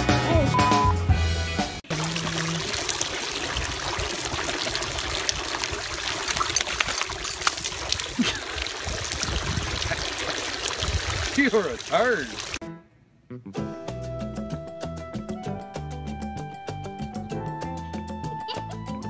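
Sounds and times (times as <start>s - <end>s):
fountain water splashing: 1.9s - 12.6s.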